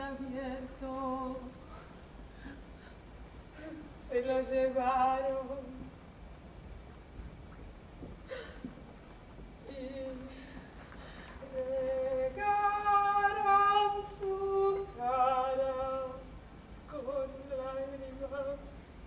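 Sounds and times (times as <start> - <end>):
woman singing slow tune: 0.0 - 1.9, 3.6 - 6.0, 9.6 - 10.7, 11.4 - 18.8.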